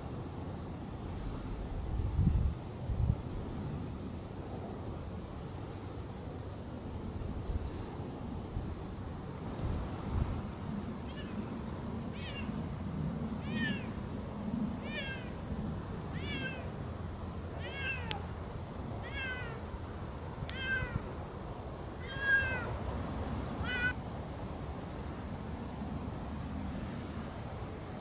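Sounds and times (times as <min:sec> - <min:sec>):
cat meowing: 0:12.1 - 0:12.6, 0:13.4 - 0:13.9, 0:14.8 - 0:15.3, 0:16.1 - 0:16.7, 0:17.6 - 0:18.2, 0:19.0 - 0:19.6, 0:20.5 - 0:21.1, 0:22.0 - 0:22.7, 0:23.6 - 0:24.0.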